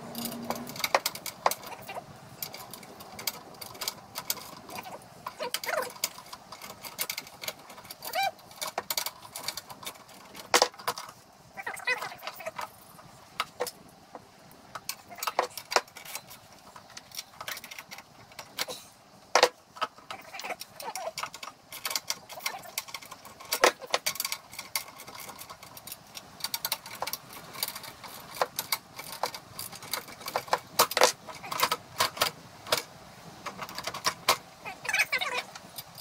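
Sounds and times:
metallic clinks and knocks: 0.0s - 11.2s.

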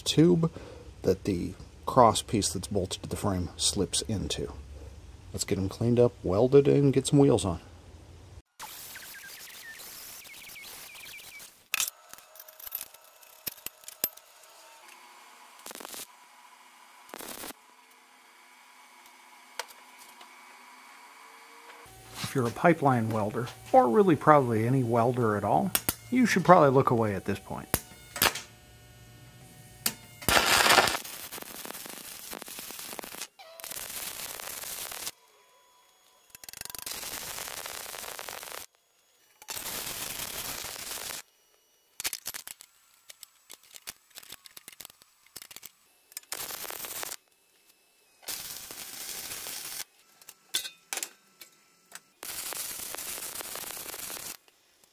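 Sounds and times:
crackling welding: 15.6s - 16.1s, 17.0s - 17.6s, 21.9s - 29.0s, 29.8s - 35.2s, 35.9s - 38.8s, 39.4s - 41.3s, 41.9s - 47.4s, 48.2s - 50.7s, 51.4s - 54.9s
angle grinder cutting steel: 29.8s - 38.7s.

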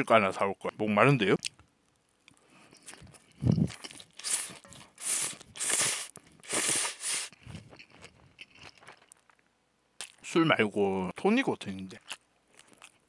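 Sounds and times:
chewing: 2.3s - 9.4s, 11.9s - 13.0s
person slurping noodles: 3.0s - 7.7s.

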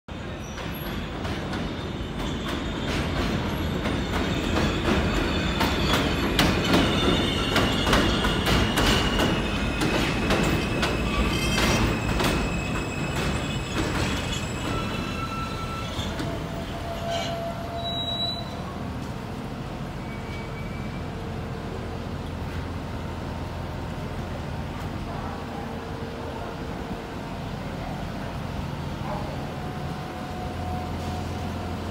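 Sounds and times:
brake squeal: 0.3s - 18.7s, 20.0s - 21.1s
train wheels clattering: 0.5s - 17.5s.

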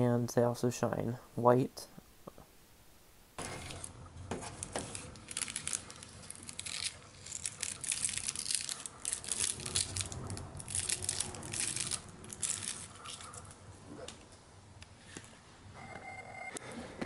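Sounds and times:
plastic film crinkling: 3.4s - 13.6s.

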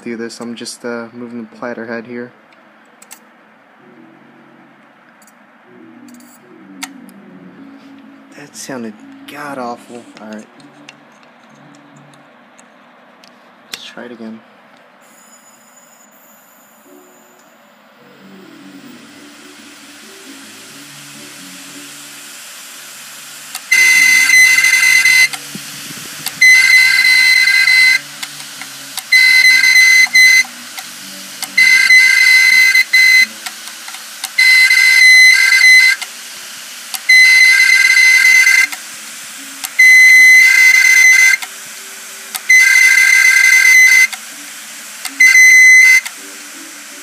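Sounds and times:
hard drive hum: 0.0s - 47.0s
hard drive screeching: 23.2s - 30.9s, 45.1s - 46.1s.

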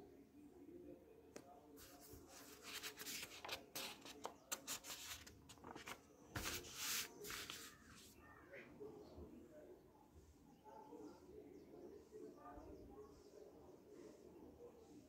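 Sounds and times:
paper pages rustling: 1.8s - 8.1s.

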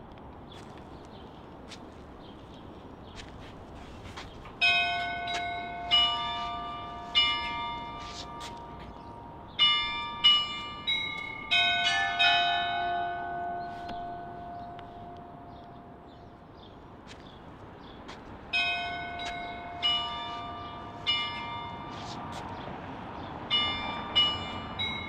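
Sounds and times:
bells ringing: 4.6s - 16.6s, 18.5s - 22.3s, 23.4s - 25.0s.

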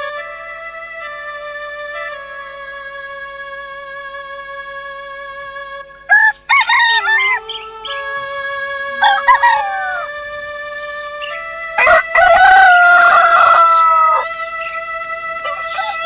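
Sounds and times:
held music tones: 0.0s - 16.0s
rooster crowing: 6.1s - 7.7s, 8.9s - 10.2s, 11.8s - 14.7s, 15.4s - 16.0s.

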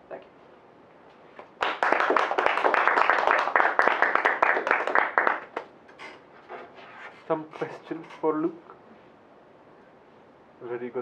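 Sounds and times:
audience applauding: 1.4s - 5.7s.

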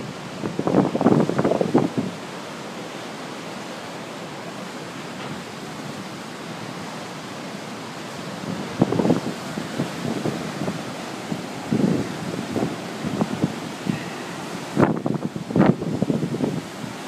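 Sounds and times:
wind buffeting microphone: 0.0s - 2.5s, 8.1s - 17.0s
ocean surf on rocky shore: 0.0s - 17.0s.

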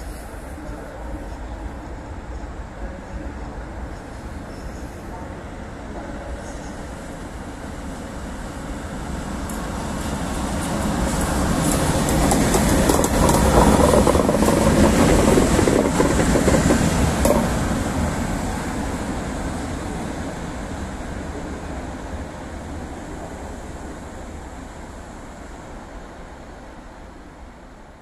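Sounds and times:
locomotives rumbling past: 10.0s - 19.2s
wheels clicking on track: 10.6s - 17.7s.

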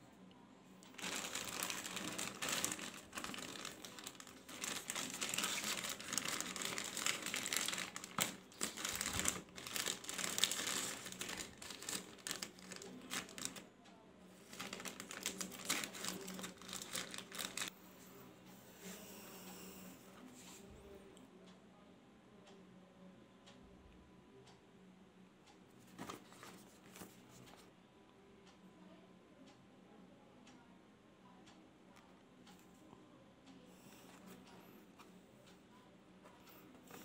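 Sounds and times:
plastic mailer crinkling: 0.9s - 13.6s, 14.4s - 17.7s, 25.9s - 27.2s.

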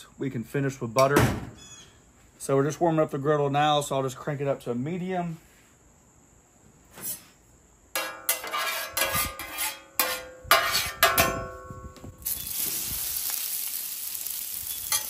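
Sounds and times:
metal spatula scraping griddle: 8.0s - 11.4s, 12.4s - 15.0s
potatoes sizzling: 12.2s - 15.0s.

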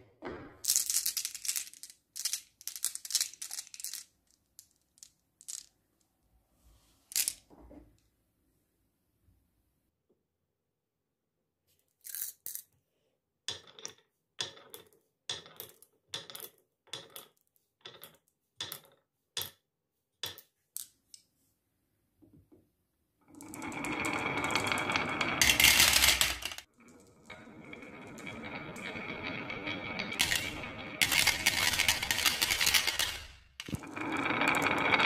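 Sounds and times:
marbles rolling along wooden track: 0.6s - 5.7s, 13.5s - 19.6s, 23.3s - 35.0s
marbles clicking on wood: 13.5s - 19.6s, 23.4s - 35.0s.

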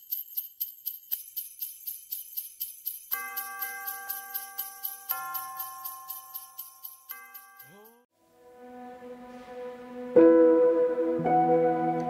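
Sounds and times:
high jingling rhythm: 0.0s - 8.1s.

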